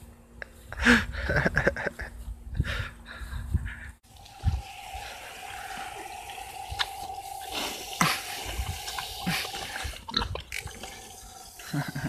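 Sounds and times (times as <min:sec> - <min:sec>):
thin steady tone: 0:04.0 - 0:10.1
hose spraying water: 0:04.0 - 0:12.0.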